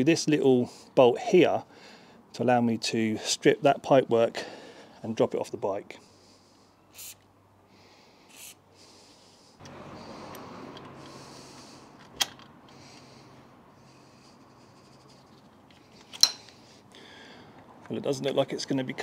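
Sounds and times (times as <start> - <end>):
faint steady hum: 5.9 - 18.1
spanner turning on bolt: 9.6 - 11.3.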